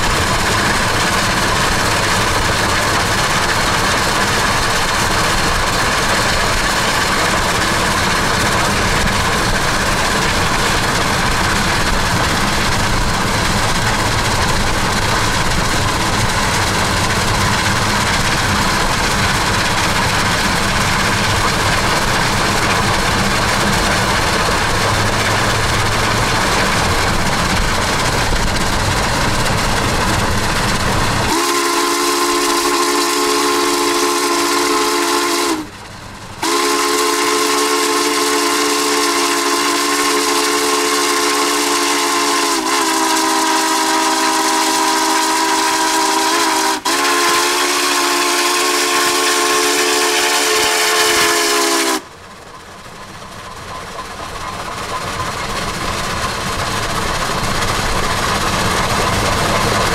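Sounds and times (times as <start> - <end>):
train running rumble: 0.0 - 59.9
steam whistle chord: 31.3 - 35.8, 36.4 - 52.1.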